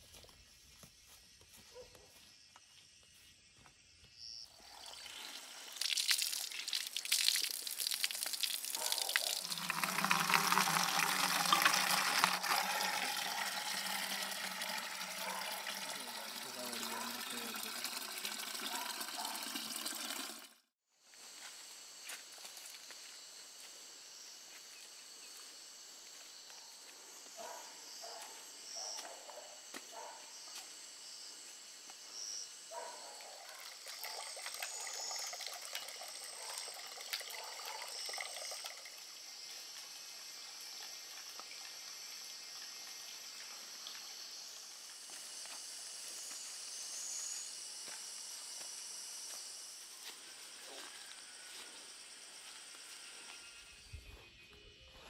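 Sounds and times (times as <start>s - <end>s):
rustling or footsteps: 0.0s - 4.1s
crickets chirping: 0.0s - 18.8s, 21.1s - 55.0s.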